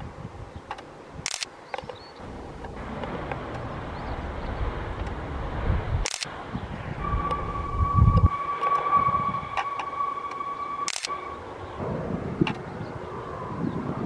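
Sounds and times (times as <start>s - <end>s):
distant jet engines rushing: 0.0s - 14.0s
camera shutter clicking: 1.2s - 1.5s, 6.0s - 6.3s, 10.9s - 11.1s.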